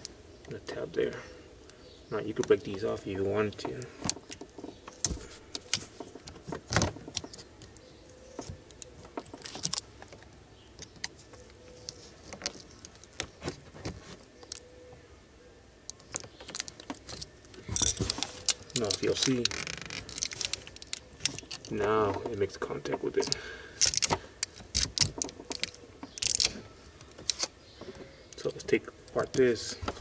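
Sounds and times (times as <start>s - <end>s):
small rattles: 16.0s - 30.0s.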